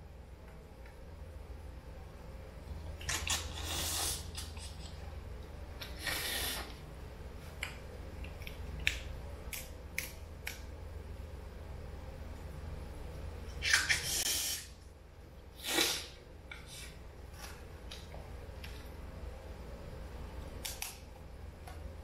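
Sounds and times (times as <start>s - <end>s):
sucking and chewing: 2.8s - 5.1s.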